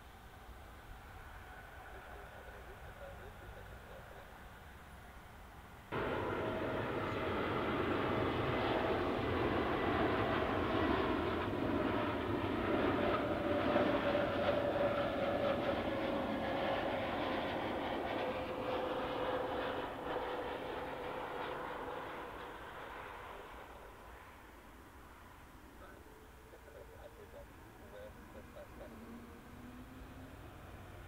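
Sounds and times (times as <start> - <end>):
jet airliner landing: 0.2 - 31.0.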